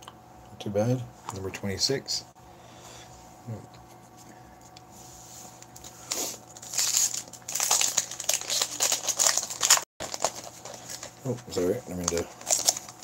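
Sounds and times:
wrapper crinkling and tearing: 0:05.8 - 0:13.0.

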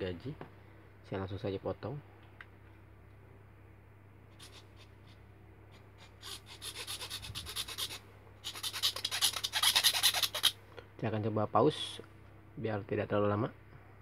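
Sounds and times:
hand saw cutting plastic: 0:06.0 - 0:10.6.

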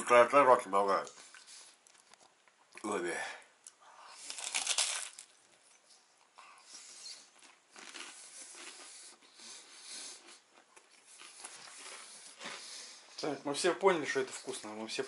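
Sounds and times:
man chewing: 0:01.1 - 0:02.8, 0:03.6 - 0:13.2
nasal breathing: 0:08.1 - 0:13.2.

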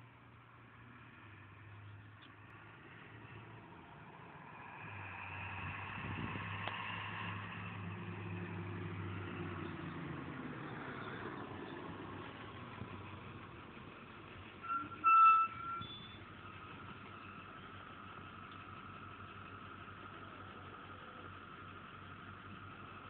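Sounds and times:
bus engine driving past: 0:00.0 - 0:23.0.

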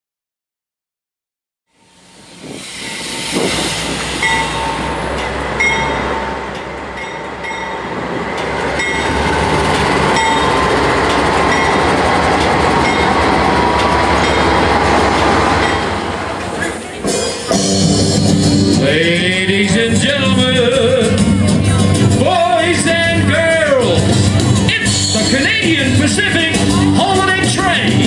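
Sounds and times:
high-pitched wheel squeals: 0:01.7 - 0:07.6
diesel locomotive engine rumble: 0:01.7 - 0:28.0
train wheels on rails: 0:01.7 - 0:28.0.

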